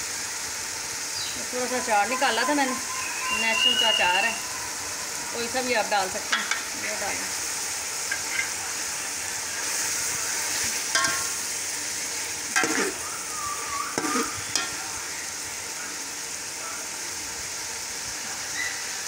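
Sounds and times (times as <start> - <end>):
meat sizzling in oil: 0.0 - 19.0
metal spoon scraping pot: 8.1 - 8.6, 12.6 - 13.0.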